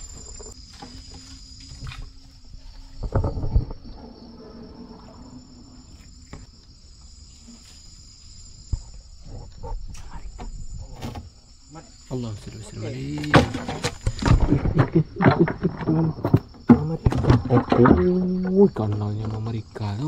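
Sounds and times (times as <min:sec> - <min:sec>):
crickets chirping: 0:00.0 - 0:20.0
thumps and rustling of fronds: 0:13.0 - 0:19.6.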